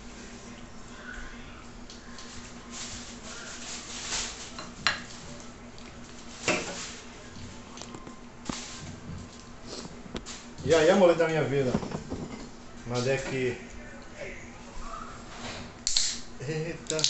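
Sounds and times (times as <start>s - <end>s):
tableware knocking on stone countertop: 11.7s - 12.5s.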